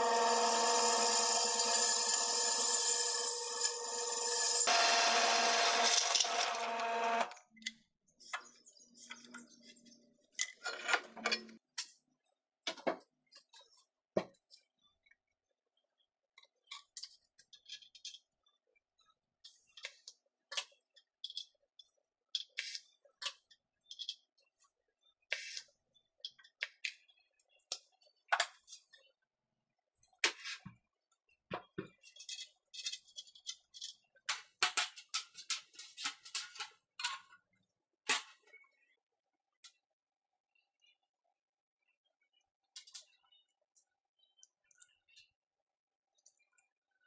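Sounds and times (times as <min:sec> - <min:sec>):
drill press motor whine: 0:00.0 - 0:07.4.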